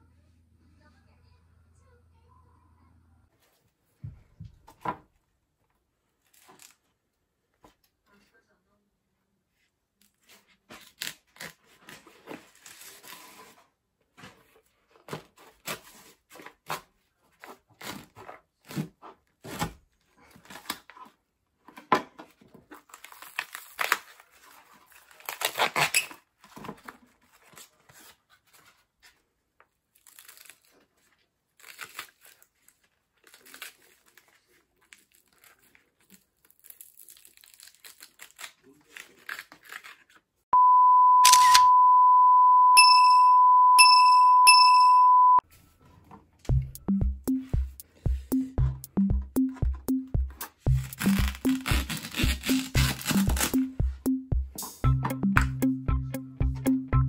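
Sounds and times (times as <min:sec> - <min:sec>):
husk leaves tearing and peeling: 0:06.1 - 0:07.0, 0:10.0 - 0:13.5, 0:22.7 - 0:26.3, 0:29.8 - 0:40.3, 0:50.7 - 0:53.7.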